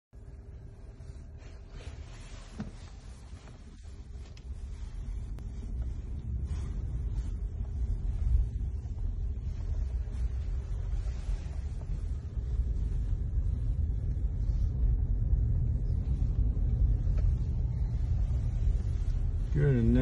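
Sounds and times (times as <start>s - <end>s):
car engine and road noise: 0.2s - 20.0s.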